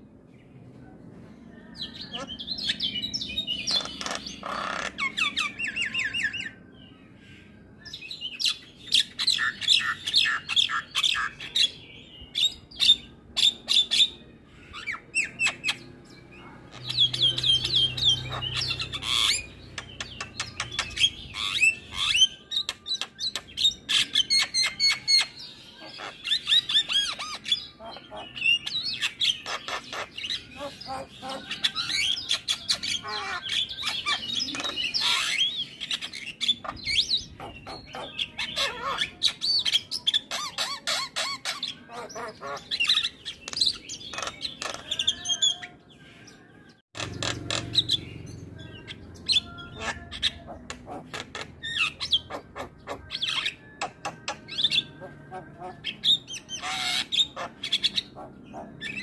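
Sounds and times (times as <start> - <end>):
myna chattering song: 14.7 - 59.0.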